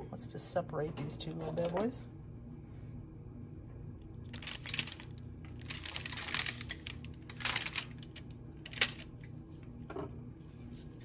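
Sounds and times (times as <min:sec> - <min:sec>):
aluminium foil crinkling: 0:04.2 - 0:09.3.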